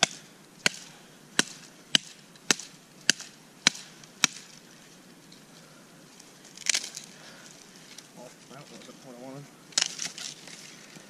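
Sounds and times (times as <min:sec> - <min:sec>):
blade chopping sapling limbs: 0:00.0 - 0:04.7, 0:06.5 - 0:07.2, 0:09.7 - 0:11.0.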